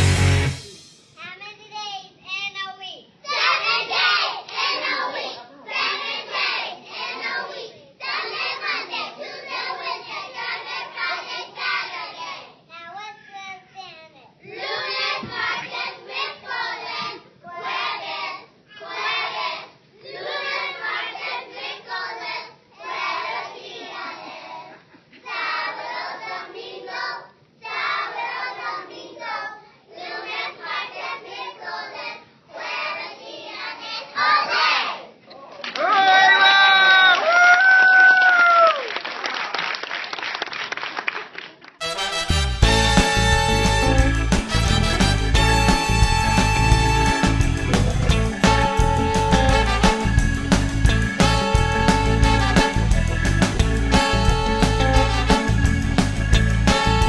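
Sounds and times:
children's choir singing: 3.3 - 12.4, 14.5 - 35.1.

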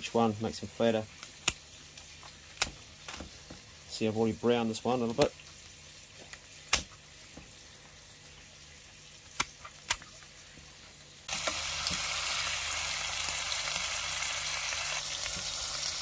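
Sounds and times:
meat sizzling in oil: 10.7 - 16.0.

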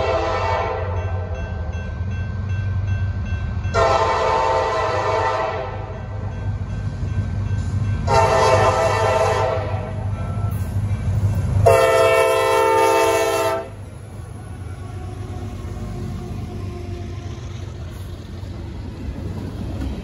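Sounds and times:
train horn blasts: 0.0 - 1.3, 3.7 - 6.0, 8.0 - 10.6, 11.6 - 13.9
freight cars rolling: 7.3 - 20.0
diesel engine rumble: 9.9 - 20.0.

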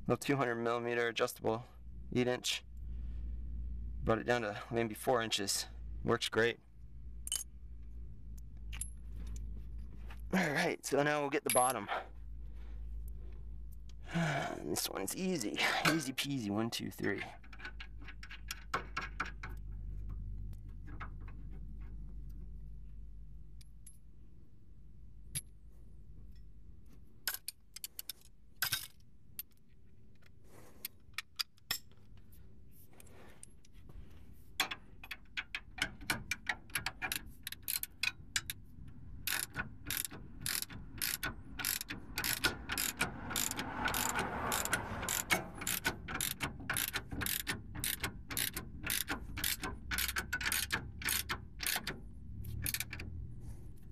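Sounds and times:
ratchet wrench clicking: 34.6 - 38.6, 39.2 - 53.2.

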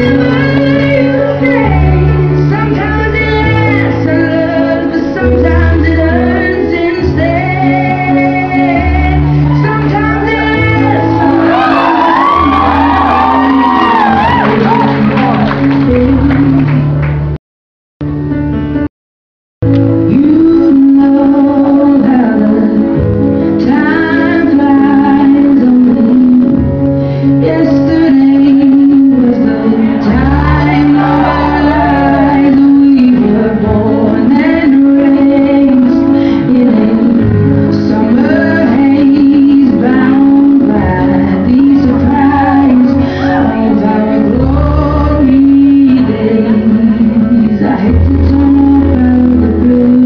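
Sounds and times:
woman singing: 0.0 - 16.9, 19.9 - 50.0
sustained musical accompaniment: 19.6 - 50.0.

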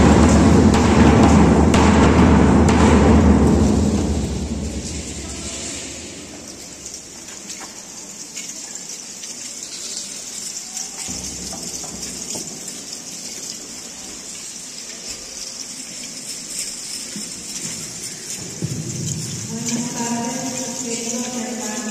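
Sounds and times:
low roll of thunder: 0.0 - 6.9
steady rain falling: 0.0 - 21.9.

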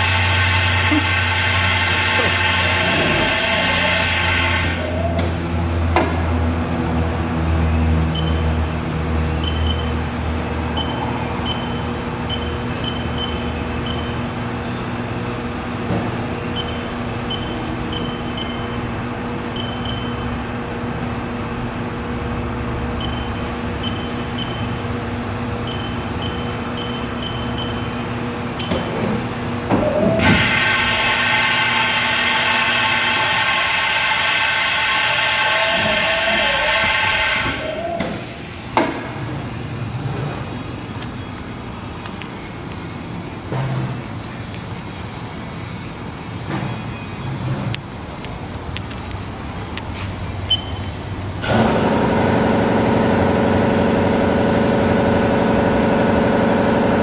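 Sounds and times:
machine motor hum: 0.0 - 4.8
hiss: 0.0 - 4.9, 30.2 - 38.7
spindle whine: 0.0 - 5.7, 29.6 - 38.5.

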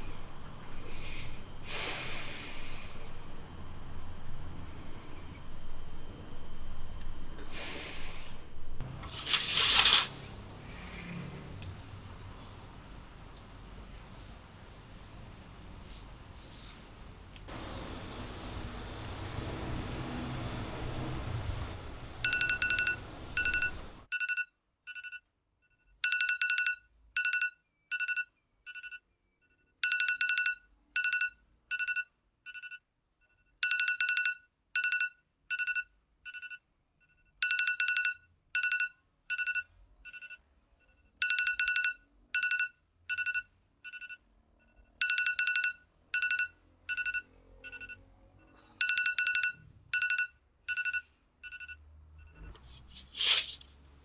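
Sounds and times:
low city hum: 0.0 - 24.1
smartphone electronic beeping: 22.2 - 25.3, 26.1 - 52.6.

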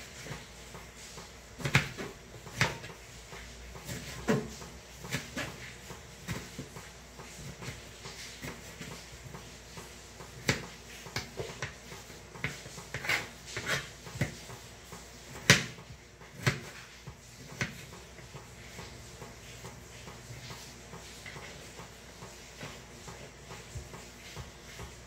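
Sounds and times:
knife chopping on plastic board: 1.6 - 14.5, 15.2 - 18.8.

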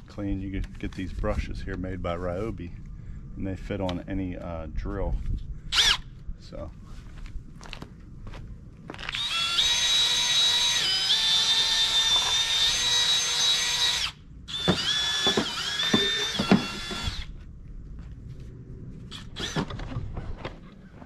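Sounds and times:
cordless drill motor whine: 5.7 - 6.2, 8.9 - 17.4, 19.1 - 19.9.

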